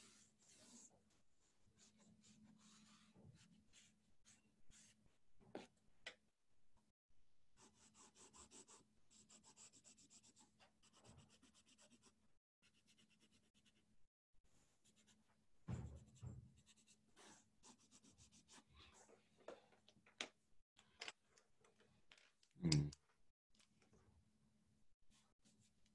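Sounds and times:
pen scratching on paper: 0.0s - 0.9s, 1.8s - 5.7s, 7.6s - 13.8s, 16.6s - 18.8s.

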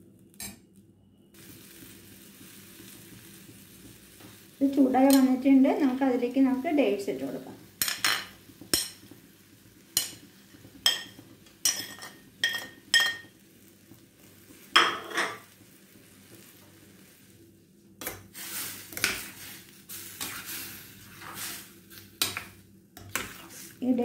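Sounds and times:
light sizzle: 0.0s - 24.0s.

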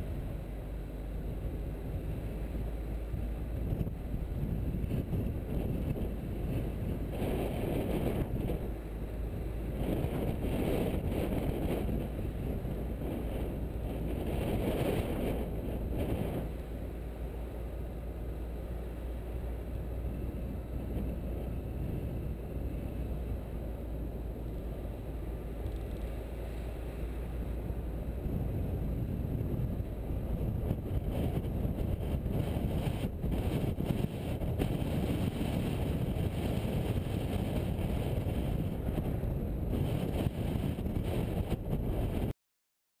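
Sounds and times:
car engine and tyre rumble: 0.0s - 42.3s
wind on microphone: 1.7s - 17.4s, 19.2s - 42.3s.

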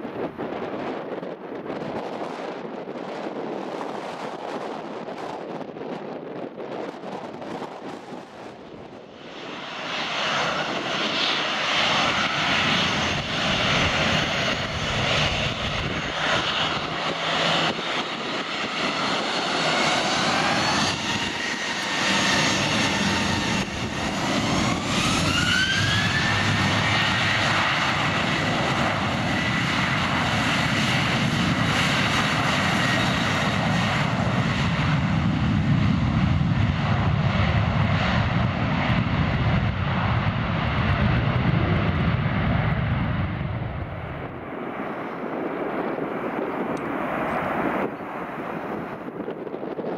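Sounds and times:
jet engines running: 0.0s - 49.9s
jet engine whine rising: 6.4s - 49.9s.

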